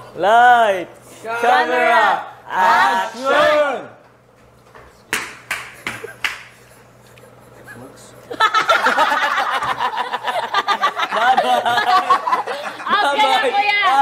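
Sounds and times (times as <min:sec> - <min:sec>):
people laughing: 0:05.8 - 0:14.0.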